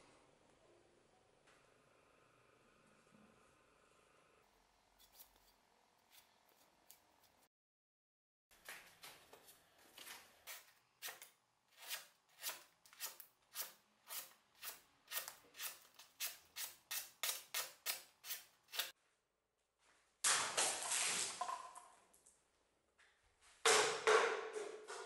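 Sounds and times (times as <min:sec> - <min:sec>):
axe blade slicing paper: 0:10.5 - 0:18.9.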